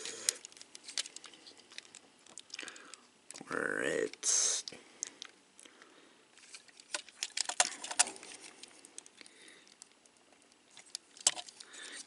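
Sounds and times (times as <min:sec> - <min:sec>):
plastic toy parts clicking: 0:06.4 - 0:09.9, 0:10.8 - 0:12.0.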